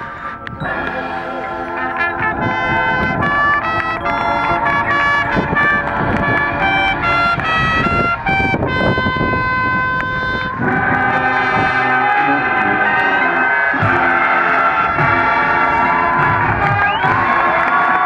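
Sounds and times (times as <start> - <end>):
low brass: 0.0 - 18.0
marching band brass playing: 0.0 - 18.0.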